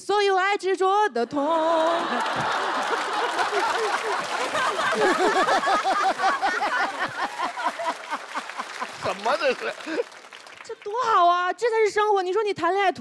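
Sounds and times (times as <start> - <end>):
people clapping: 1.6 - 11.2
audience laughing: 1.8 - 10.3.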